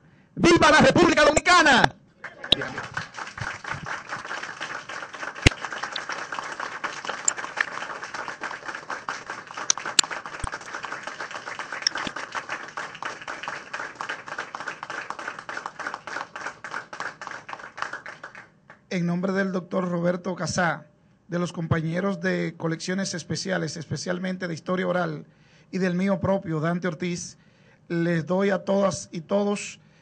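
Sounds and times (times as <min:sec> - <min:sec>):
audience applauding: 0:02.2 - 0:18.5.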